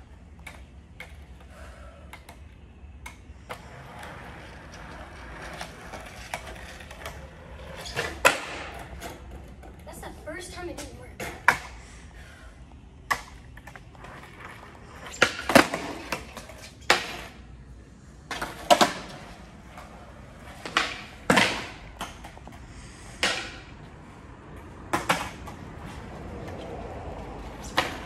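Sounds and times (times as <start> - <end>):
skateboard cracking on concrete: 2.1 - 9.9, 13.0 - 17.5, 18.2 - 23.8, 24.6 - 28.0.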